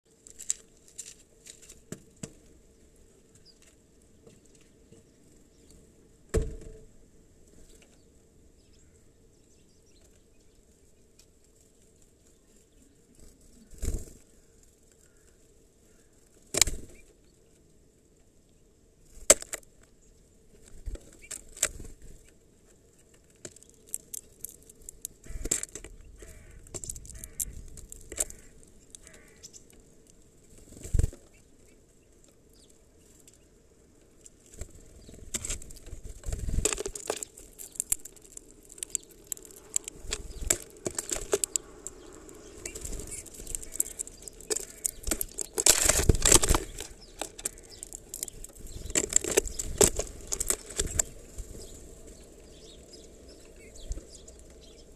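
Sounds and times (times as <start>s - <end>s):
bird wing flutters: 13.1s - 14.6s, 30.6s - 31.2s
birds knocking on plastic feeder: 25.2s - 29.3s.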